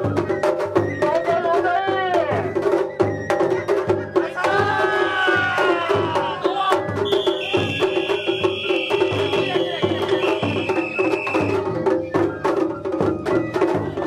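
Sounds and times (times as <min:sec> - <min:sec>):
heavy drum beat: 0:00.0 - 0:14.0
high sliding melody: 0:06.4 - 0:11.8.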